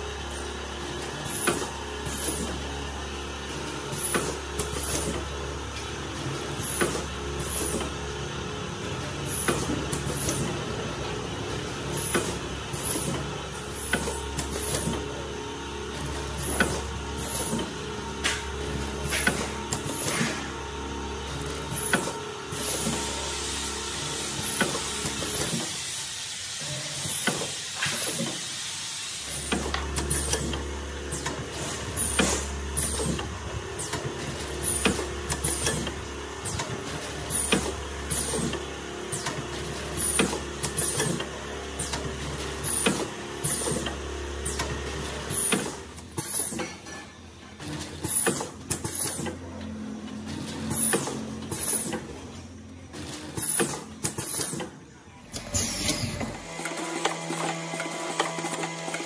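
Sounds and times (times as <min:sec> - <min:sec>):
continuous mechanical hum: 0:00.0 - 0:59.0
packing machine jaws clacking: 0:16.0 - 0:20.6, 0:29.3 - 0:49.5, 0:50.1 - 0:52.2, 0:52.9 - 0:59.0.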